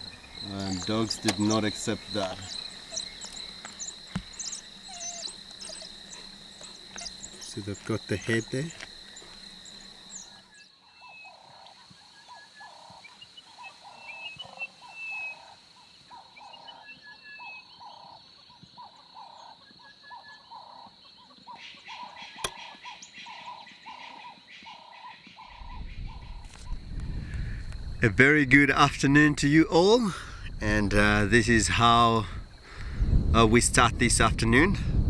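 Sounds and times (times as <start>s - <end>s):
repeated animal call: 0.0s - 26.8s
high insect trill: 0.0s - 35.0s.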